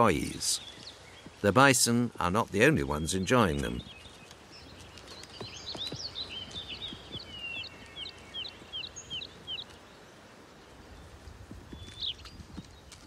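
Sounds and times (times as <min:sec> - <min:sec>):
faint woodland ambience: 0:00.0 - 0:13.0
songbird chirping: 0:00.0 - 0:13.0.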